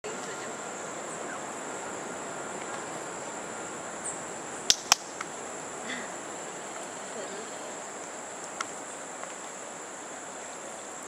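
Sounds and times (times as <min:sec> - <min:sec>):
high-pitched insect drone: 0:00.0 - 0:09.1
sharp clicks: 0:04.7 - 0:05.3.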